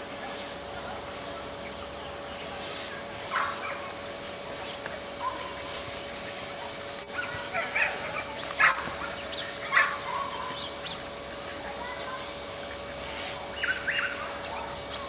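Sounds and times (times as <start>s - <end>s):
faint steady hum: 0.0s - 15.0s
ducks calling: 7.1s - 12.2s, 13.0s - 15.0s.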